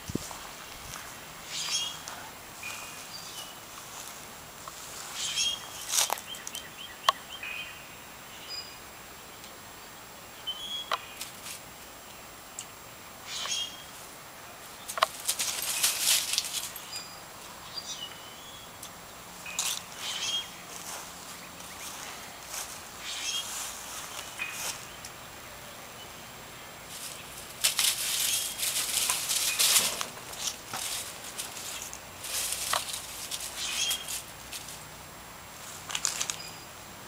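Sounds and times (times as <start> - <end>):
noisy scuffle: 14.9 - 16.8, 26.9 - 34.8
small animals chirping: 33.4 - 34.2.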